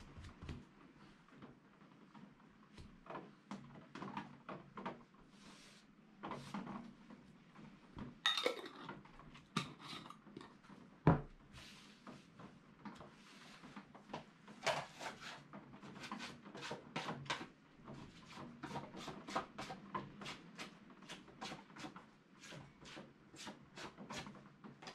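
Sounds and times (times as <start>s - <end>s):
brush scratchy rubbing and tapping: 14.7s - 24.2s.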